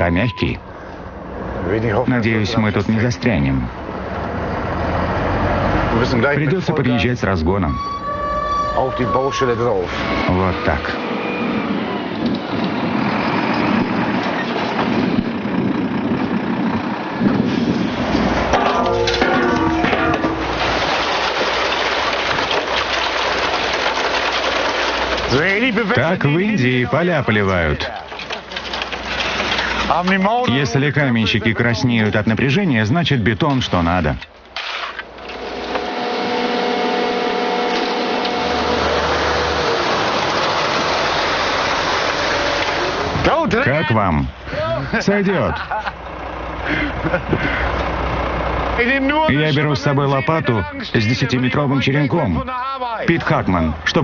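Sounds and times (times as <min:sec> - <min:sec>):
diesel truck engine running: 0:00.0 - 0:51.8
wet concrete pouring: 0:17.5 - 0:32.4, 0:33.6 - 0:43.8.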